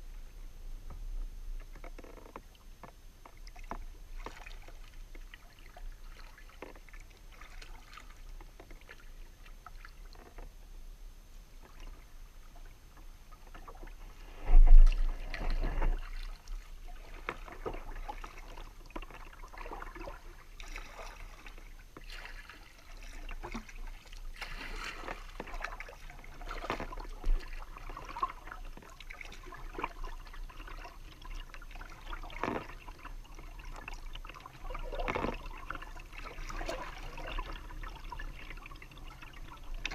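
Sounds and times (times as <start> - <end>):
paddle strokes in water: 1.6 - 10.6, 11.4 - 39.9
water dripping off paddle: 14.9 - 39.9.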